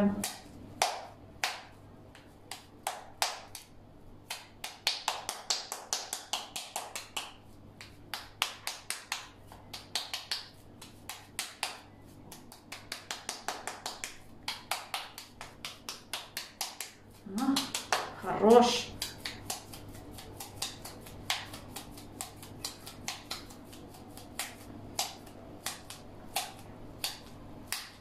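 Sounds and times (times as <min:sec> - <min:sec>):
mince slapped between palms: 0:18.9 - 0:28.0.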